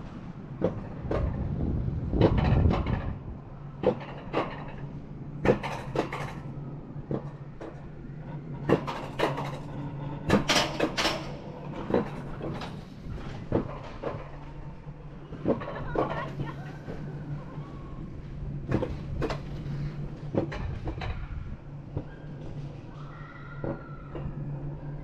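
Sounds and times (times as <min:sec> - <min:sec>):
coaster car rolling hum: 0:00.0 - 0:25.0
sharp clacks on metal track: 0:02.2 - 0:03.2.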